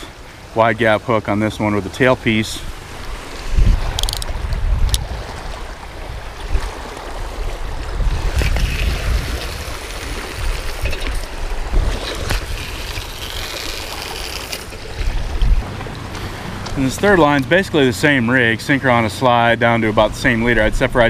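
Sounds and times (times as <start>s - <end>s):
small waves lapping on rocks: 0.0s - 21.0s
wind buffeting microphone: 2.4s - 13.4s, 14.8s - 17.7s.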